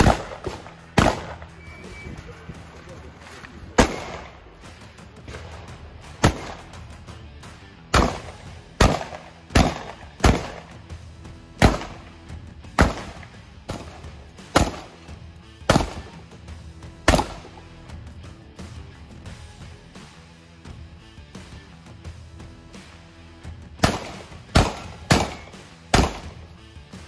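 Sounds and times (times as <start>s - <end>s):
shotgun shots: 0.0s - 2.0s, 3.7s - 4.6s, 5.2s - 6.9s, 7.9s - 10.8s, 11.6s - 12.2s, 12.8s - 16.2s, 17.0s - 17.6s, 23.8s - 26.5s
background music: 0.0s - 27.0s.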